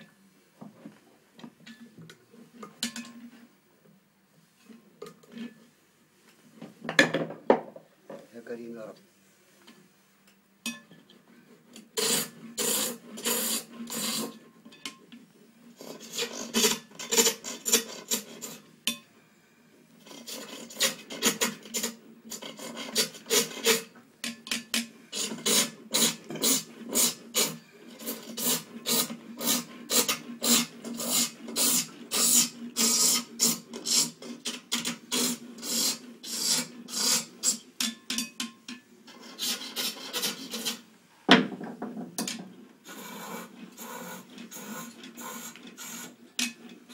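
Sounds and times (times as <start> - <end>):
hand tool rasping wood: 12.0 - 14.3, 20.1 - 23.9, 25.1 - 37.6, 39.1 - 40.8.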